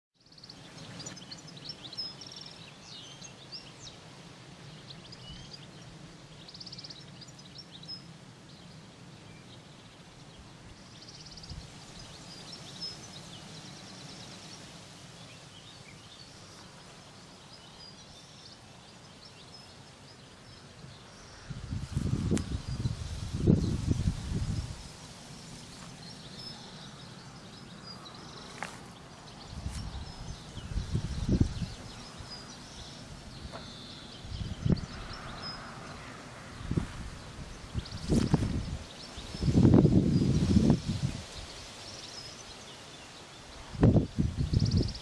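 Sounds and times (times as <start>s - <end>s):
small birds chirping and trilling: 0.2s - 45.0s
low rumbling on microphone: 21.5s - 24.9s, 29.4s - 33.6s, 34.2s - 35.6s.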